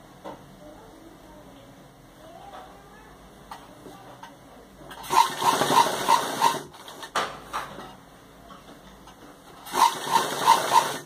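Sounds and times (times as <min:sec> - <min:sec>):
sewing machine stitching: 0:04.9 - 0:07.2, 0:09.6 - 0:11.0.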